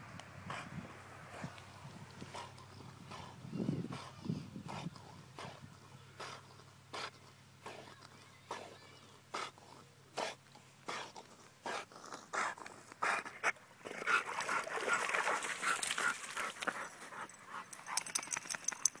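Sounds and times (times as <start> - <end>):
dog breathing hard: 0.4 - 18.5
dog panting: 0.4 - 18.5
water splashing: 13.8 - 16.5.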